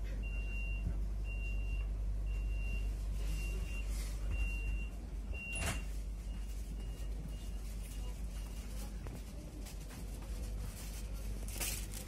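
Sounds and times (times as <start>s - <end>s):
low carriage hum: 0.0s - 12.0s
high door warning beep: 0.2s - 7.8s.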